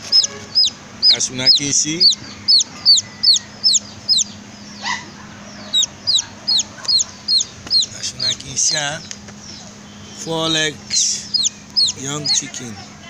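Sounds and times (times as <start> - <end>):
chick peeping: 0.0 - 13.0.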